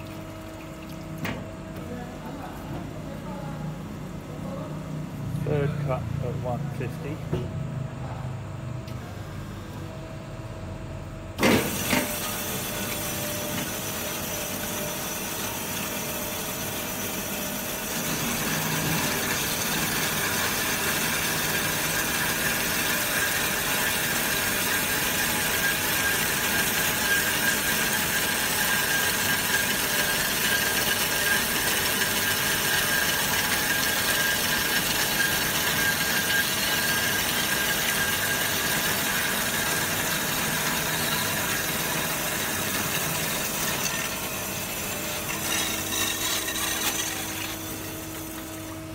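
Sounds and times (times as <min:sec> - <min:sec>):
band saw cutting steel: 0:11.4 - 0:48.9.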